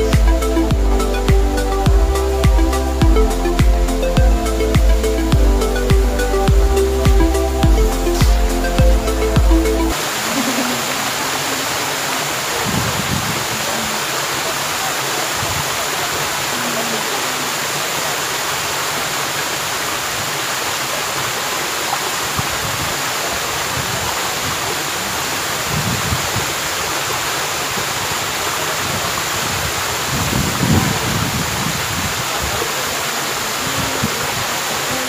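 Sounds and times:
waterfall splashing into pool: 9.9s - 35.0s.

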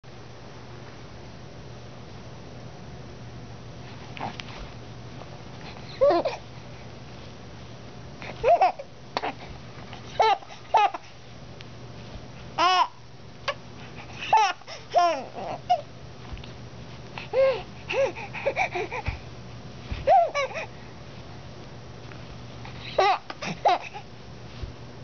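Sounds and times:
baby babbling and squealing: 5.9s - 6.4s, 14.3s - 15.9s, 20.1s - 20.7s.

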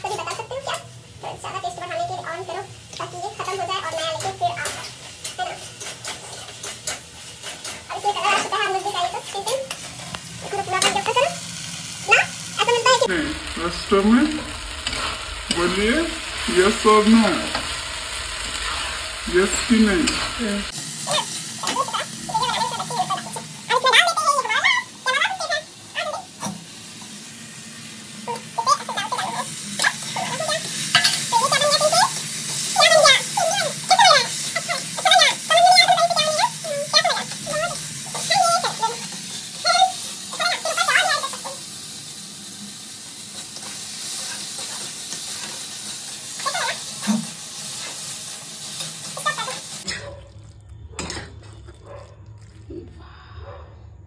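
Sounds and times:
pan sizzling: 0.0s - 52.6s
ladle stirring in pan: 3.4s - 11.2s
low hum: 12.9s - 20.8s.

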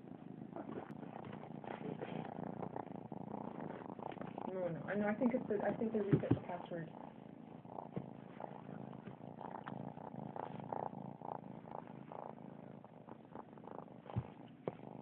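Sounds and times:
cat purring: 0.0s - 15.0s.

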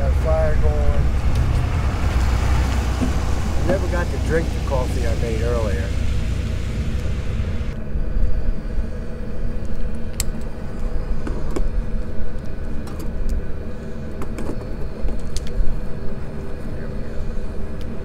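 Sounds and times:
wind rumble on microphone: 0.0s - 10.2s.

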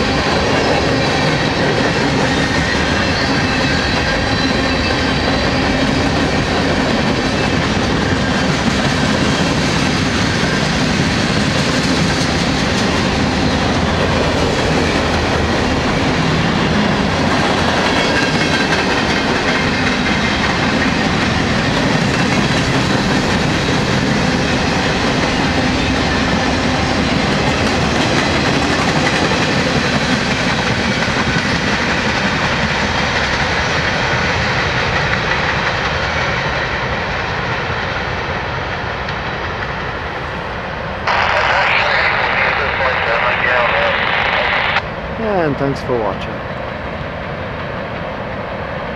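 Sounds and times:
steel train wheels on rails: 0.0s - 45.2s.

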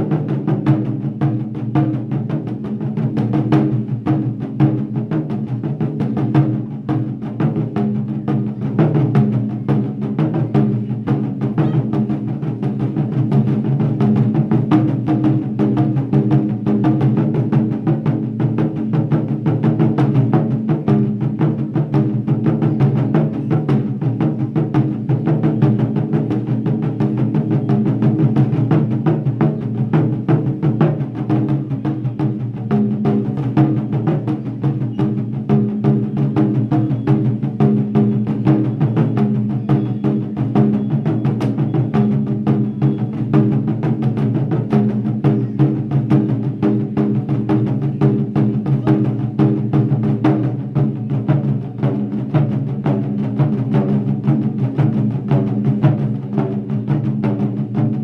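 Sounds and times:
taiko drums: 0.0s - 58.0s.

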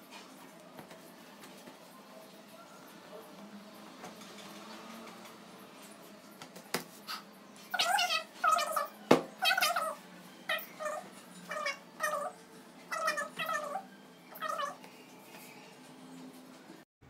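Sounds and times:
cat meowing: 7.8s - 12.3s, 12.9s - 14.8s.

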